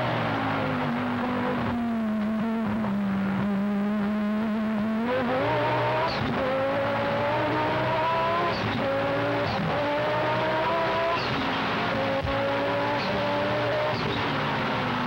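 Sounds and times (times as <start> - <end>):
race car engine accelerating: 0.0 - 15.0.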